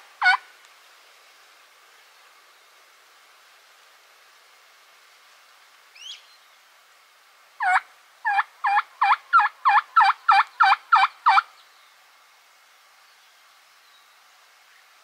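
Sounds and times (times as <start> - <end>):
turkey yelping: 0.2 - 0.4, 7.6 - 11.4
small bird chirp: 6.0 - 6.6.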